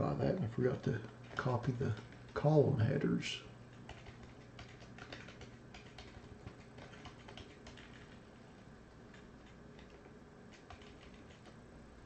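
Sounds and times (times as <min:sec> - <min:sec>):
low room hum: 0:00.0 - 0:12.0
faint keyboard keystrokes: 0:00.8 - 0:02.5, 0:03.7 - 0:08.3, 0:08.9 - 0:11.6.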